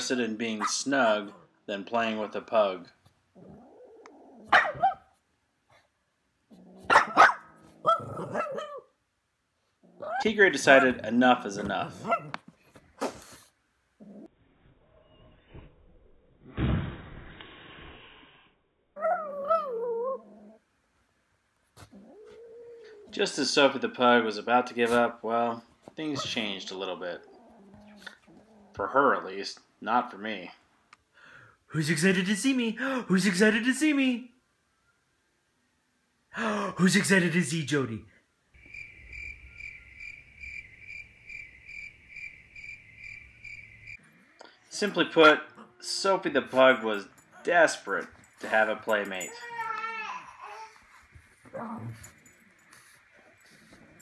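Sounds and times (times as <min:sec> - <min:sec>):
sudden rush of noise: 0:16.5 - 0:18.5
cricket chirping: 0:38.6 - 0:44.2.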